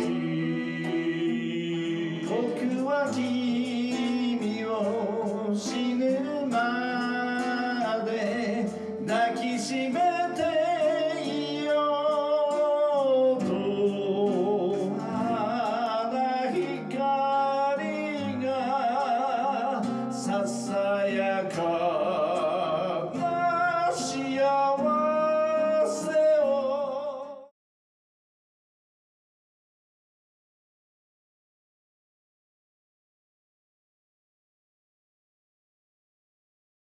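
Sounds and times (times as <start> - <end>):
acoustic guitar: 0.0 - 27.5
man singing with vibrato: 0.0 - 27.5.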